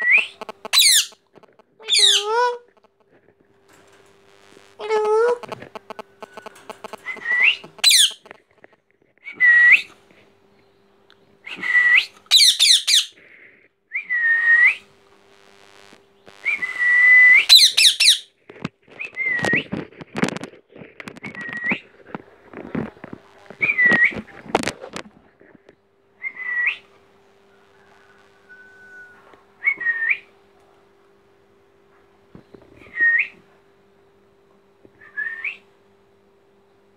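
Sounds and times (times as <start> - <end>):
clicks and rustles: 0.2 - 1.8, 2.7 - 9.2, 18.4 - 25.8
parakeet whistling and squealing: 0.6 - 1.2, 1.8 - 2.4, 7.0 - 8.2, 11.8 - 13.2, 17.3 - 18.3.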